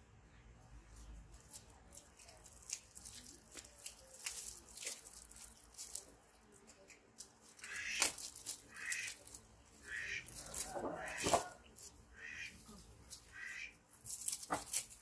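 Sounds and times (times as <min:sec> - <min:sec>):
plastic packet crinkling: 0:01.4 - 0:09.6.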